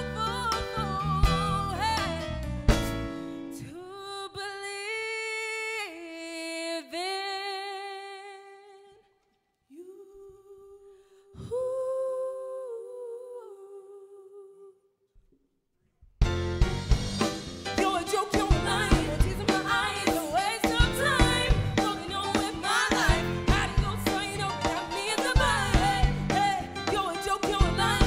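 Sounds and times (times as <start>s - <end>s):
full band playing: 0.0s - 3.3s, 16.2s - 28.0s
drum kit hit: 2.7s - 3.2s, 16.2s - 28.0s
female vocal trio singing harmony: 9.7s - 14.8s, 17.8s - 28.0s.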